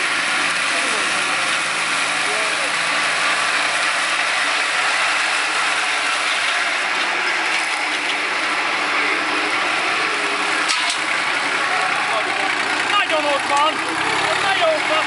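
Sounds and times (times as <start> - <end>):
tractor engine and mower running: 0.0 - 15.0.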